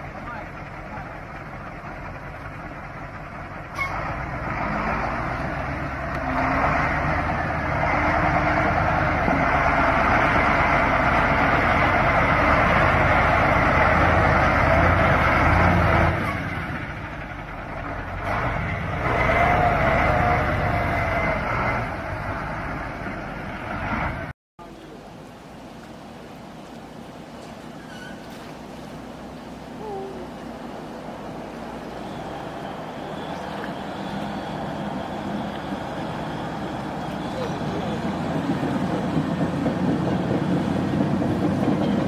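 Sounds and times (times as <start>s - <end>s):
truck diesel engine under load: 0.0s - 42.0s.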